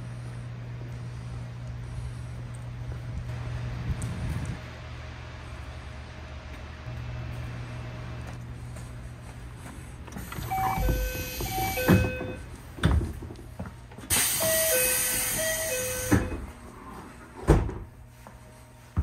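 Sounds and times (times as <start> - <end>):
two-tone train door chime: 10.3 - 12.5, 14.1 - 16.6
pneumatic door air hiss: 14.1 - 16.4.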